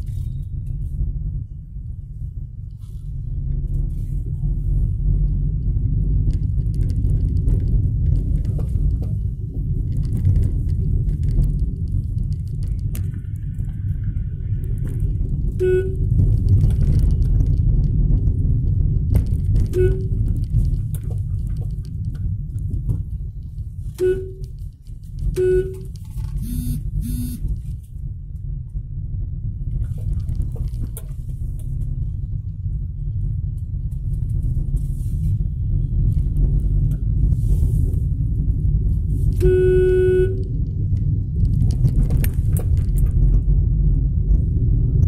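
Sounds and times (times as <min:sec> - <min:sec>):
car rumble inside cabin: 0:00.0 - 0:45.0
lower-pitched horn beeps: 0:15.5 - 0:16.2, 0:19.7 - 0:20.3, 0:24.0 - 0:24.6, 0:25.3 - 0:27.5, 0:39.4 - 0:40.6
short car horn beeps: 0:15.6 - 0:16.1, 0:19.8 - 0:20.2, 0:24.0 - 0:24.5, 0:25.4 - 0:27.4, 0:39.4 - 0:40.5.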